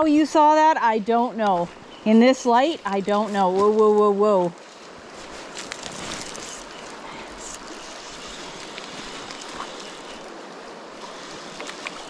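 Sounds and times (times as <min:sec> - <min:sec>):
stream water flowing: 0:00.0 - 0:12.0
faint ticks: 0:05.6 - 0:12.0.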